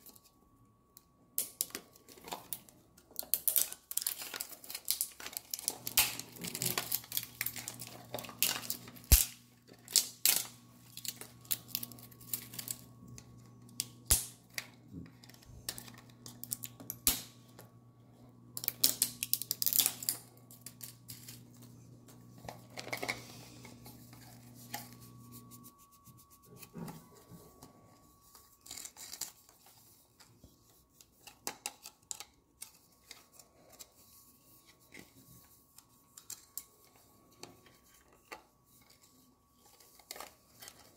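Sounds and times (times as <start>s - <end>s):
wrapping crinkling and tearing: 1.5s - 17.3s, 18.6s - 23.2s, 28.0s - 35.1s, 38.8s - 40.9s.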